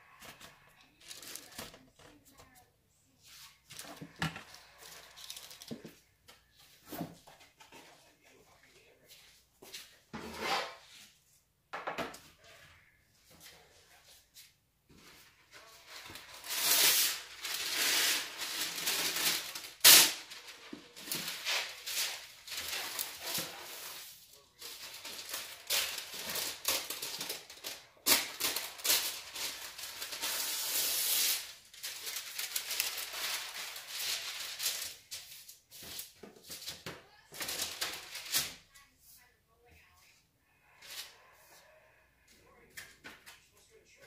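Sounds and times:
kitchen scraping and rustling: 10.0 - 11.2.

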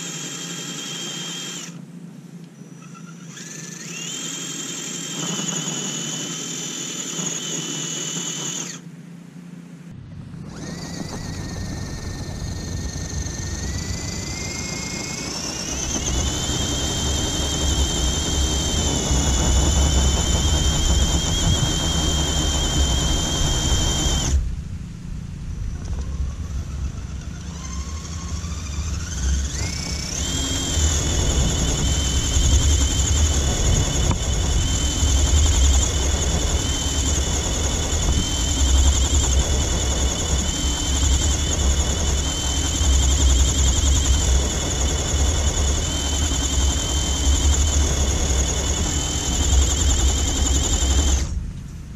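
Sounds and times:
electric motor whining: 0.0 - 8.9, 10.0 - 24.6, 25.5 - 51.7
low rumble: 9.7 - 46.1.

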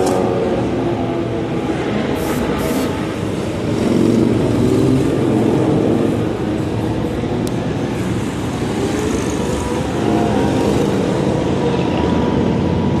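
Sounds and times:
road traffic noise: 0.0 - 13.0
motorcycle engines running: 2.9 - 13.0.

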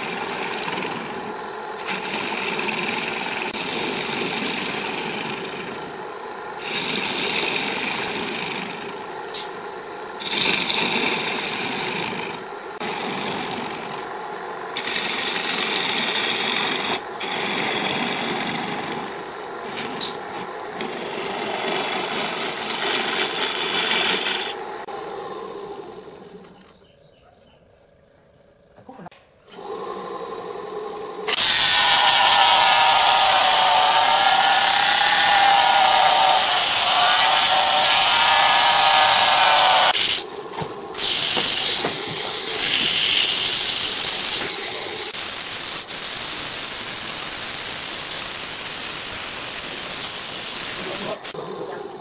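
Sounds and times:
gouge scraping wood on lathe: 0.0 - 5.8, 14.8 - 24.6, 31.3 - 40.2
lathe motor hum: 0.0 - 26.7, 29.6 - 45.8.

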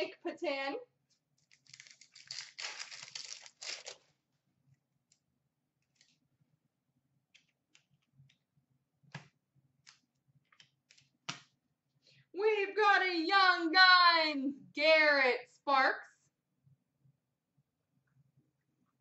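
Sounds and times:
wrapper ripping and crinkling: 1.4 - 4.2
cards flicking and tapping: 9.0 - 11.6.

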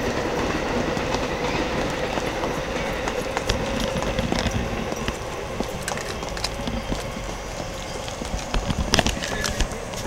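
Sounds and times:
footsteps on a hard path: 0.8 - 10.0.

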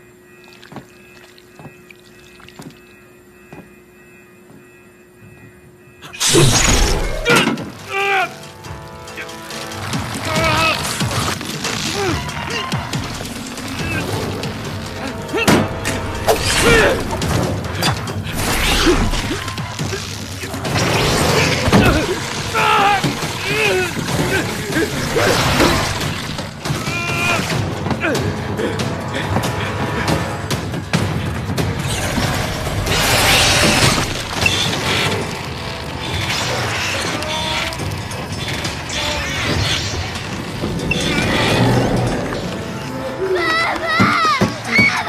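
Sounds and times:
dramatic music: 6.1 - 45.0
metal mechanisms clanking and grinding: 8.6 - 27.8, 31.0 - 43.0
crashing surge: 18.3 - 26.8, 38.4 - 43.0
rising and falling squeals: 32.8 - 43.4.

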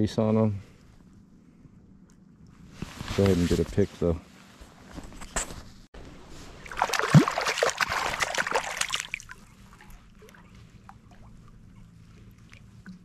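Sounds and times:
fish splashing in water: 6.6 - 11.4
water dripping and sloshing: 6.6 - 13.0.

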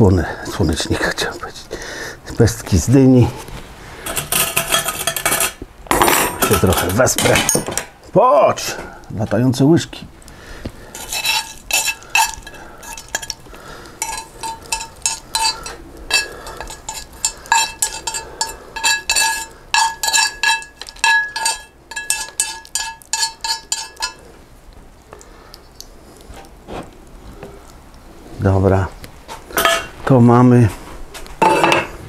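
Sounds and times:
spoon clinking against bowl: 11.0 - 13.4, 14.0 - 24.2.

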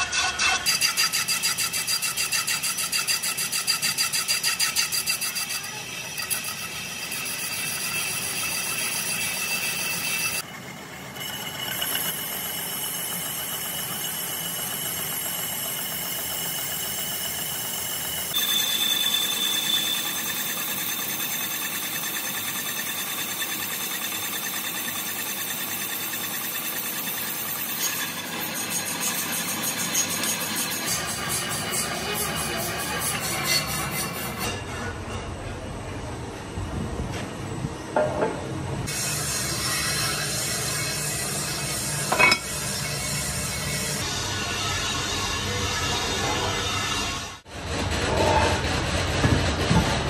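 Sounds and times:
metal lathe machining with whine: 0.7 - 34.4.

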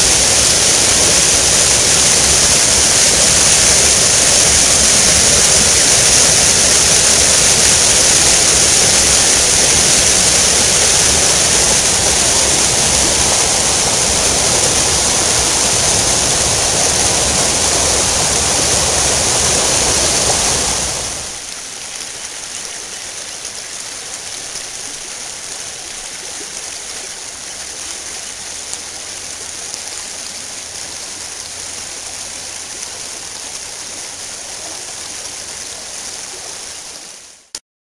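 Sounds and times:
water rushing over rocks: 0.0 - 37.6.

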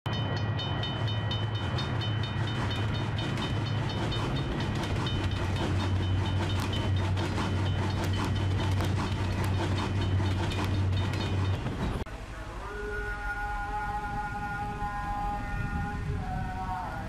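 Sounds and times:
level-crossing bell ringing: 0.1 - 8.7
steam train rumble: 0.1 - 17.0.

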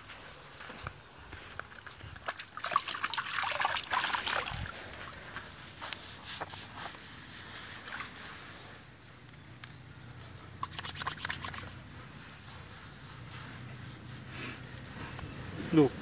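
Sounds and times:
water lapping and dripping: 1.4 - 5.5, 10.3 - 11.9
water splashing: 2.2 - 5.2, 10.6 - 11.8.

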